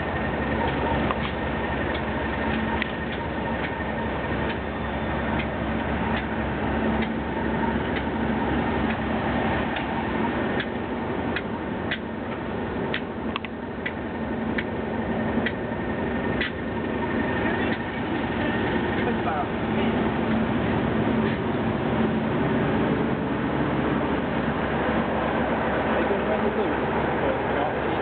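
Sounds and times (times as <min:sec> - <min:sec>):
train wheels clicking over rail joints: 0:00.0 - 0:20.4, 0:21.1 - 0:21.7
diesel locomotive engine: 0:00.0 - 0:28.0.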